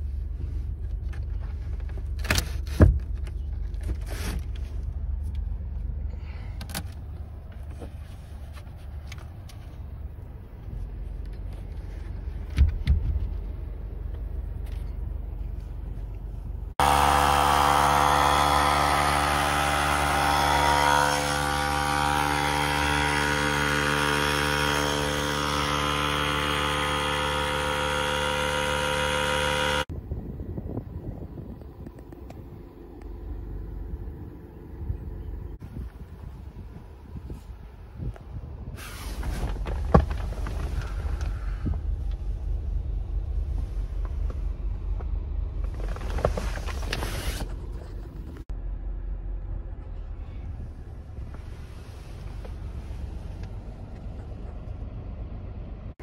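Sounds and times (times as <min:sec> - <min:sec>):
electric air compressor running: 0:16.8 - 0:29.9.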